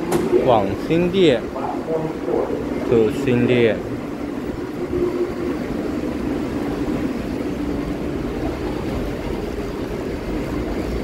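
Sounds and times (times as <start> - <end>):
steady hum and low rumble: 3.6 - 11.0.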